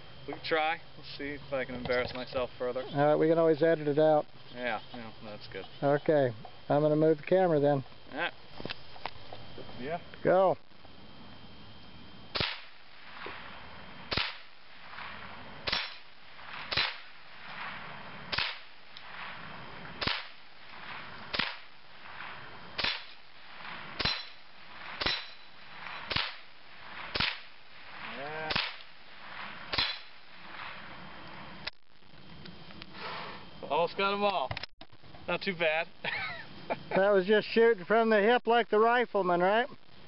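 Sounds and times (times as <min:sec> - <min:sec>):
rifle shots: 0:12.3 - 0:31.0
metallic ring of struck plate: 0:24.0 - 0:26.3, 0:29.7 - 0:30.2.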